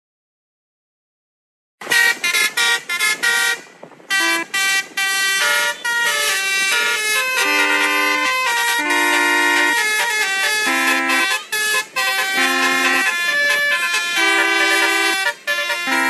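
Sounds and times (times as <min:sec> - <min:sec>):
multi-tone horn notes: 0:01.8 - 0:16.0.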